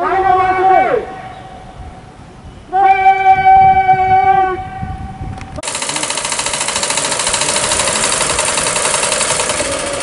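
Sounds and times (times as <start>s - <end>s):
sewing machine clattering: 5.6s - 10.0s.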